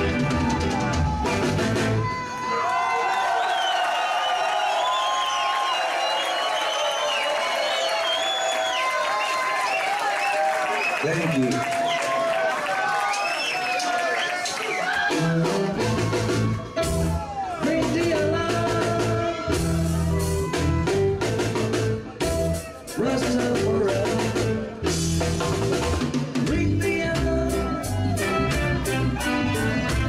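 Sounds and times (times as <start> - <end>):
heavy bass notes: 0.0 - 2.1, 15.3 - 30.0
live reggae band playing: 0.0 - 2.5, 14.4 - 30.0.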